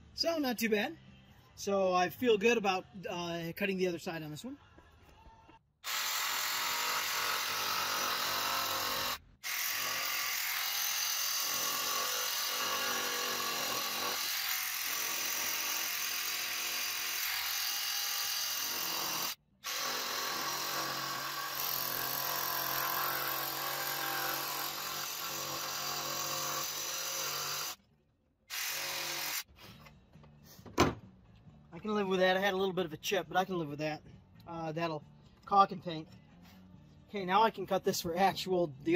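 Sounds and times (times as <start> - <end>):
jigsaw cutting wood: 5.8 - 27.8, 28.5 - 29.5.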